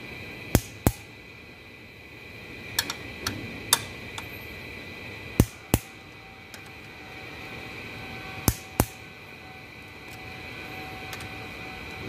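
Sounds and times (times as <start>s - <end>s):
torque wrench clicking: 0.5s - 1.1s, 2.7s - 3.0s, 5.4s - 7.0s, 8.4s - 9.0s.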